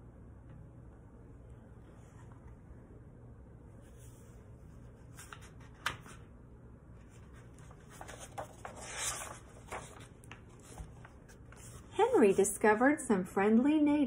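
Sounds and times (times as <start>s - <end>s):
paper rustling and sliding: 3.8s - 6.3s, 7.0s - 12.5s.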